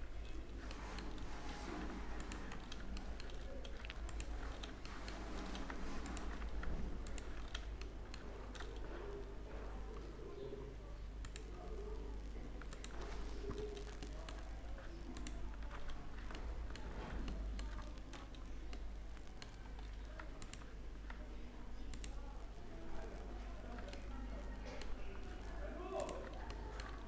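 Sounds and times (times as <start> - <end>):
keyboard and mouse clicks: 0.2 - 10.1, 11.2 - 11.6, 12.5 - 22.2.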